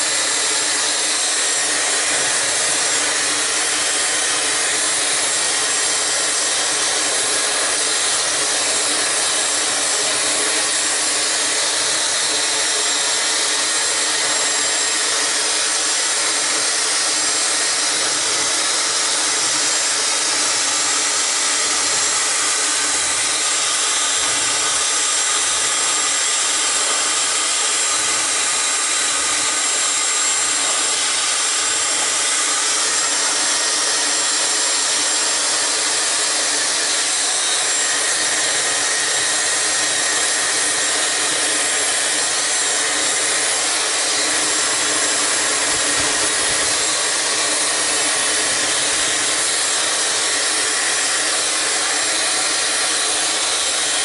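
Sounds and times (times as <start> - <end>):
hair dryer blowing air: 0.0 - 54.0.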